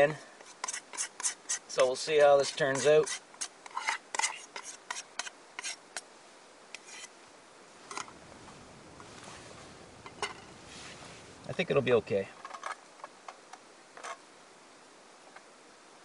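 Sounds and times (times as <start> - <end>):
faint steady hiss: 0.0 - 16.0
spoon scraping a bowl: 0.4 - 1.8, 2.4 - 5.8, 6.8 - 7.1.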